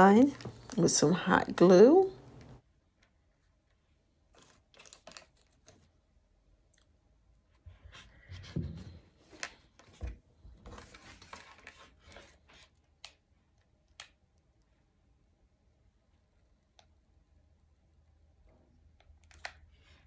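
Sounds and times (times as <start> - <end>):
rustling of artificial plant and paper: 3.3 - 6.0, 7.6 - 13.2.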